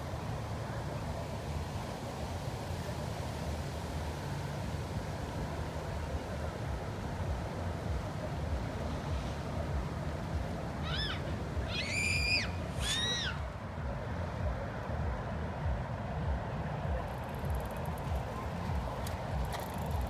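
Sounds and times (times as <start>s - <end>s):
wind rumbling on microphone: 0.0s - 20.0s
short high-pitched cries: 10.8s - 13.5s.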